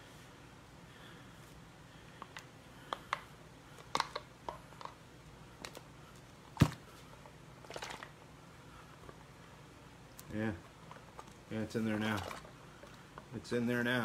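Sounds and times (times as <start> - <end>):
plastic bottle crackling: 7.6 - 8.2.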